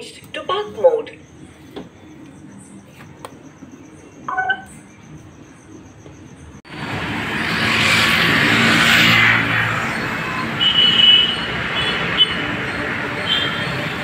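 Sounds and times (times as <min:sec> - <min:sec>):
street traffic noise: 0:00.0 - 0:14.0
short high-pitched beeps: 0:04.2 - 0:04.8
vehicle passing: 0:06.7 - 0:14.0.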